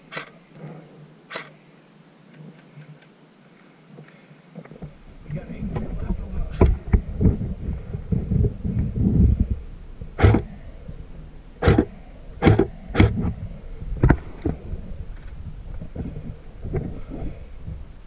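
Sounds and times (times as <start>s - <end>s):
low rumbling movement noise: 4.5s - 18.0s
airsoft gun shots: 10.2s - 10.5s, 11.6s - 13.2s.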